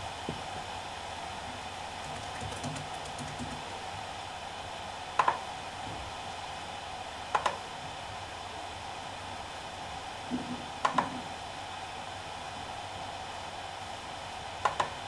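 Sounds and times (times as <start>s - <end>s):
hard drive spinning whir: 0.0s - 15.0s.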